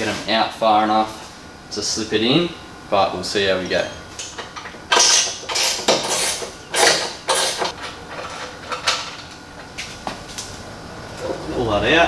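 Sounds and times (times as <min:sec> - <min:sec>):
tool scraping and rattling: 0:03.7 - 0:09.3.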